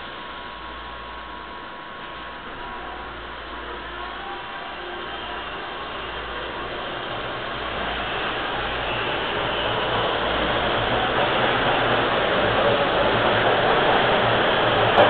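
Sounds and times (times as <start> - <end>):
subway train pulling out: 0.0 - 15.0.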